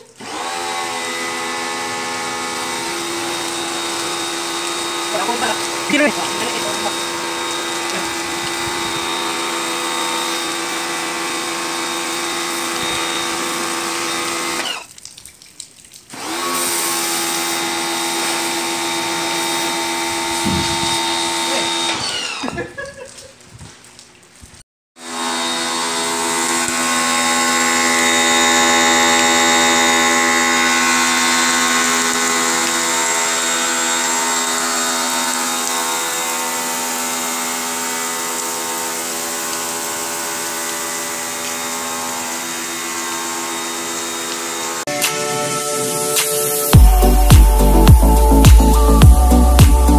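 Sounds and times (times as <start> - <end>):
pressure washer motor whining: 0.0 - 14.9, 16.1 - 22.8, 25.0 - 49.9
water spray hissing: 2.4 - 14.9, 16.4 - 21.9, 26.6 - 42.7.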